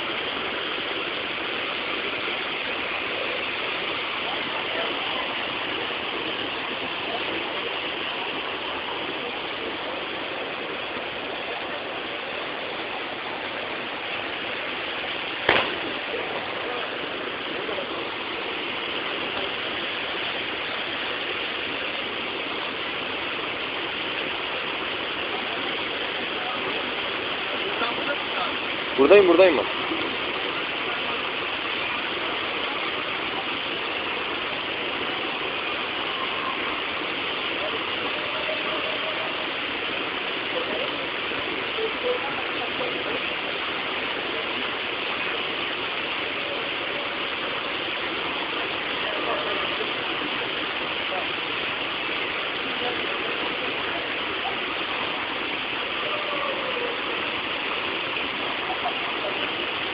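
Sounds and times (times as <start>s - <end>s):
waterfall roaring: 0.0s - 59.9s
sharp knock: 15.5s - 16.0s.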